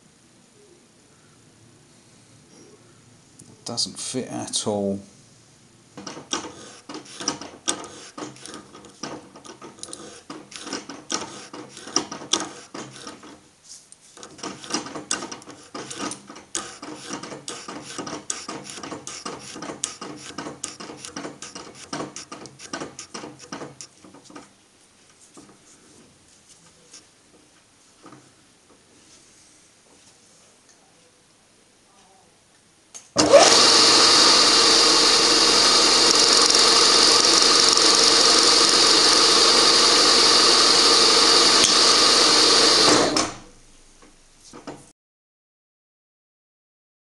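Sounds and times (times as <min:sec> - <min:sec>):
milling machine clicking chatter: 0:36.1 - 0:39.3.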